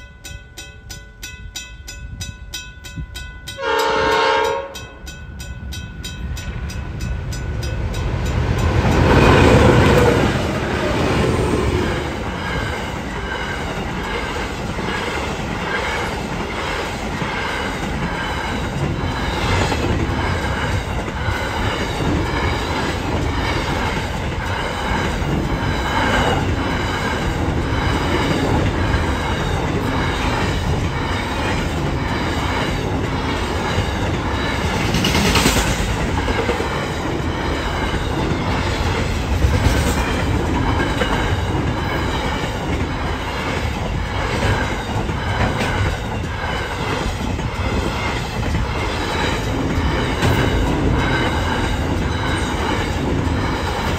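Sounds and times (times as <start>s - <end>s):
train wheels clicking over rail joints: 6.4s - 53.9s.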